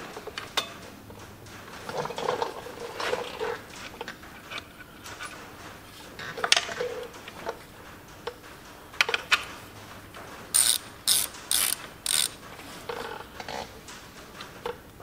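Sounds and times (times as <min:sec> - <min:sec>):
hand ratchet clicking: 0:10.5 - 0:12.4.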